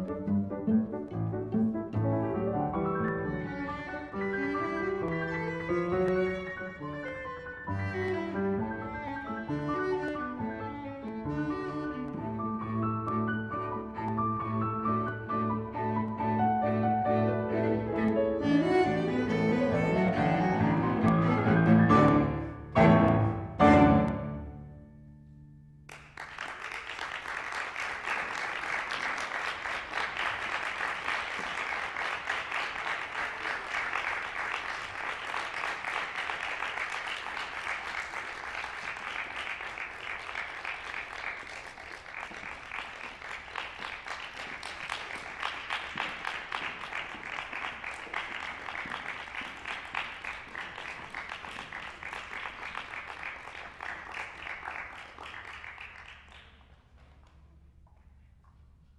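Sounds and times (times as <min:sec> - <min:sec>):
audience applauding: 0:25.9 - 0:57.4.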